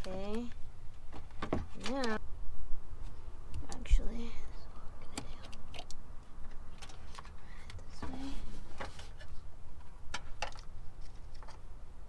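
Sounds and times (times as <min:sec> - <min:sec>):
low steady rumble: 0:02.0 - 0:12.0
hands clicking plastic fuse box: 0:05.0 - 0:07.9.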